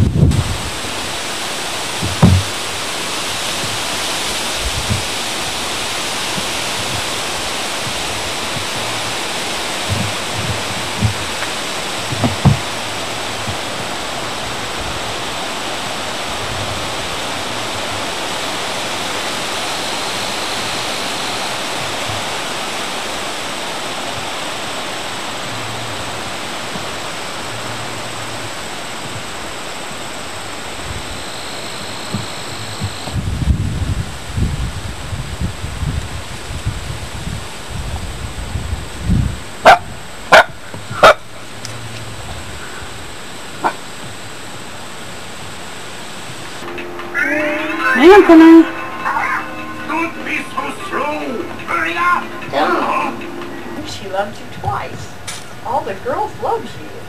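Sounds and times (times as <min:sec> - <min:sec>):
soft low bumps: 0:00.0 - 0:18.4, 0:21.3 - 0:45.6
steady rushing hiss: 0:00.0 - 0:57.0.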